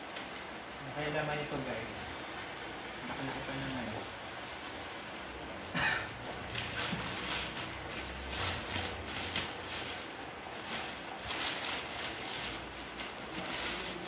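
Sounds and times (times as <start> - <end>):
plastic mailer bag crinkling: 3.0 - 14.0.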